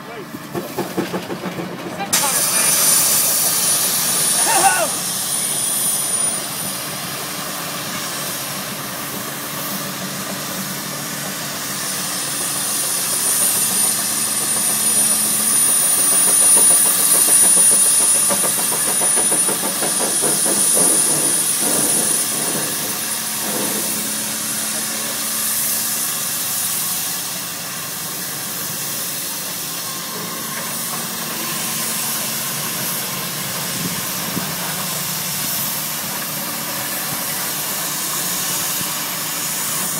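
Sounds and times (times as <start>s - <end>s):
steam traction engine running: 0.0s - 39.9s
steam hissing: 2.1s - 39.9s.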